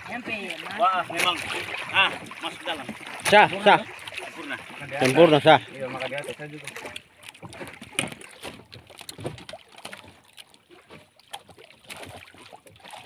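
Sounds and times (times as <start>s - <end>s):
water noise: 0.0s - 13.0s
wooden boat knocks and clicks: 6.7s - 12.0s.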